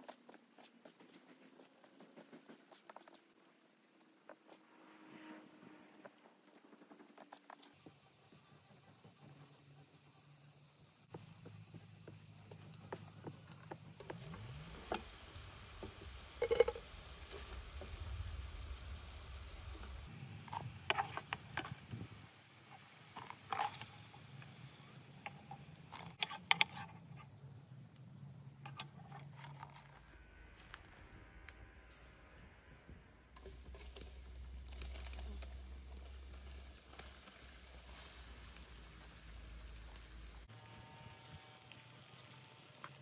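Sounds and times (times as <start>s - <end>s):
faint steady hiss: 0.0s - 28.9s, 30.0s - 43.0s
metal spoon scraping steel pots: 25.2s - 27.2s.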